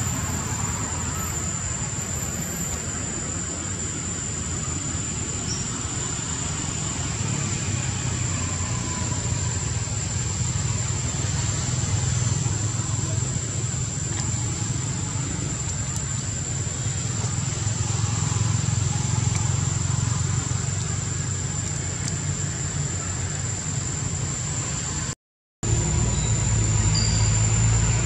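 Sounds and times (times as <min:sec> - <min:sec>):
thin high-pitched whine: 0:25.7 - 0:28.0.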